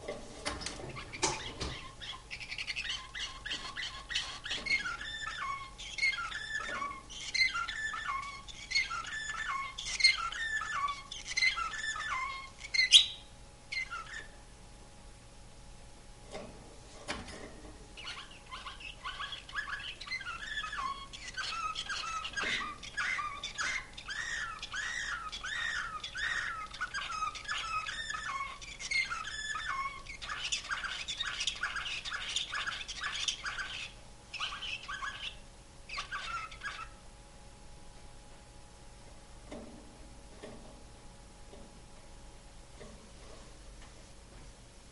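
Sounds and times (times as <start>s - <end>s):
canary singing trills: 0.6s - 14.4s, 17.9s - 37.0s.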